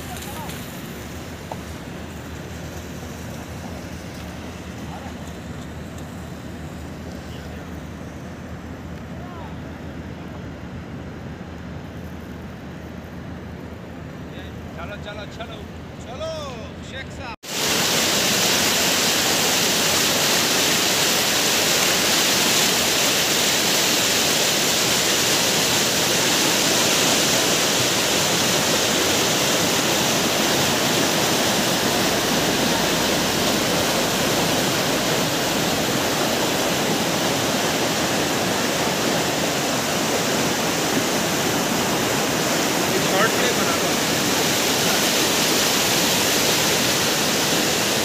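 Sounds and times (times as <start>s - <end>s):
river rushing over boulders: 17.4s - 48.0s.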